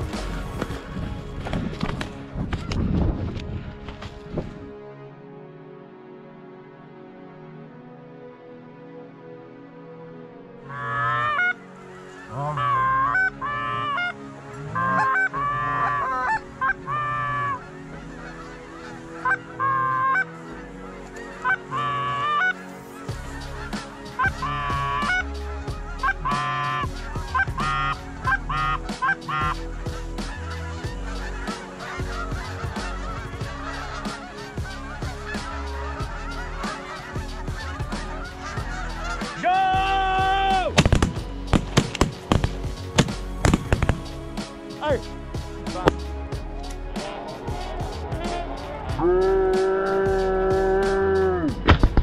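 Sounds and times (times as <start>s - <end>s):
goose honking: 10.6s - 22.6s, 23.2s - 41.0s, 47.0s - 51.8s
shotguns firing: 40.8s - 44.0s.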